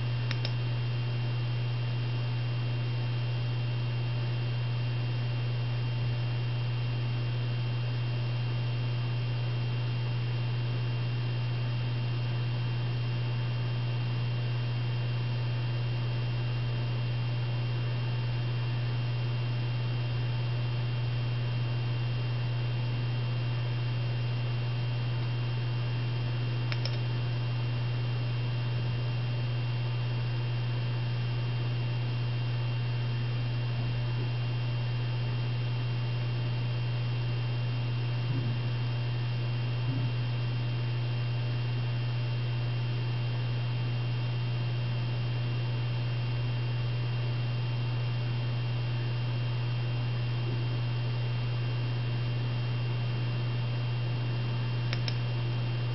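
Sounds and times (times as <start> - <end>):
low electrical hum: 0.0 - 55.9
faint tick: 0.3 - 0.6, 54.9 - 55.2.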